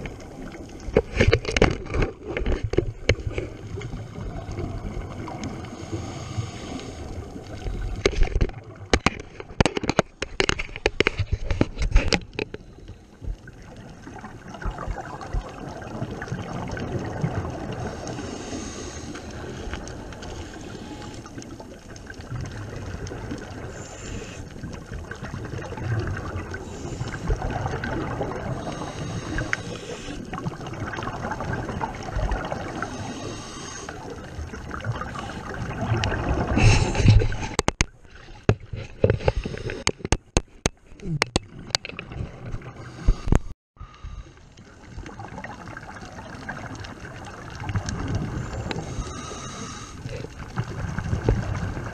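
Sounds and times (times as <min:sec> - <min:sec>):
sharp clicks and knocks: 0:08.0 - 0:12.6, 0:37.0 - 0:42.0.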